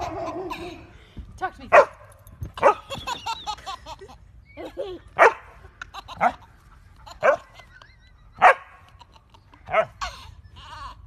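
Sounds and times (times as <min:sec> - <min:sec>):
baby laughing: 0:05.8 - 0:11.0
dog barking: 0:08.4 - 0:08.6.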